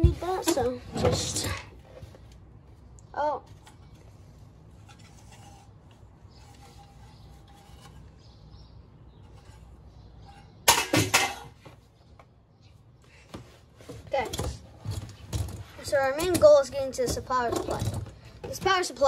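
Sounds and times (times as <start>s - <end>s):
computer parts clattering on metal: 14.2s - 18.8s.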